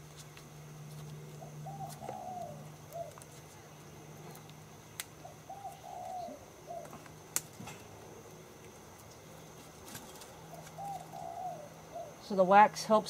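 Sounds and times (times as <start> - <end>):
dove cooing: 1.4 - 3.4, 5.2 - 7.2, 10.0 - 12.2.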